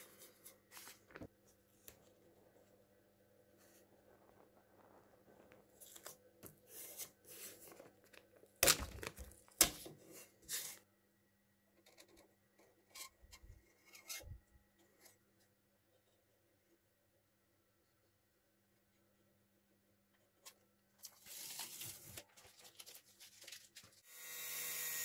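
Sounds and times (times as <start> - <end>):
masking tape crinkling and tearing: 8.6 - 9.8
tape rustling as smoothed: 20.4 - 24.0.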